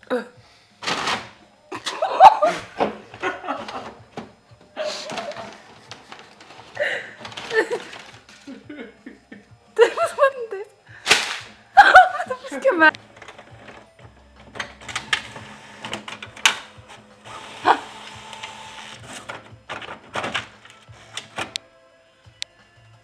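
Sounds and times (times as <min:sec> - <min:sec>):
printer clicking and whirring: 0:03.2 - 0:04.4, 0:05.0 - 0:08.4, 0:12.9 - 0:21.6.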